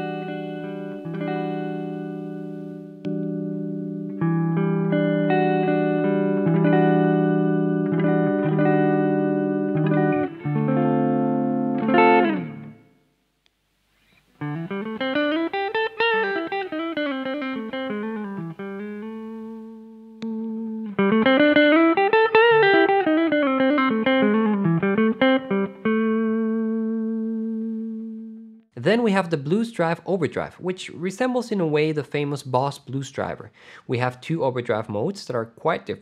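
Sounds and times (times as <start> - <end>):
overdriven electric guitar: 0.0 - 13.0, 14.0 - 28.6.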